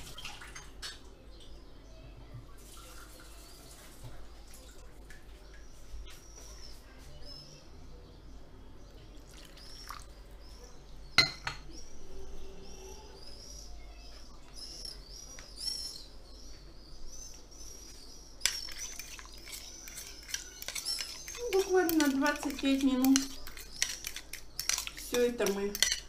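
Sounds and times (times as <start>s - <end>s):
bird chirping: 5.6s - 26.0s
spoon clinking against bowl: 11.2s - 11.7s, 18.4s - 26.0s.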